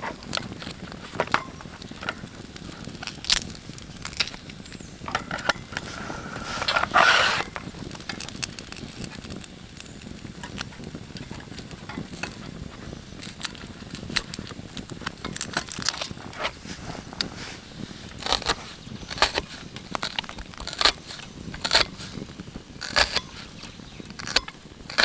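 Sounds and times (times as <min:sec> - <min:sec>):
wood fire crackling and popping: 0:00.0 - 0:25.0
knife scraping a vegetable: 0:05.3 - 0:07.6, 0:15.3 - 0:22.2, 0:22.8 - 0:25.0.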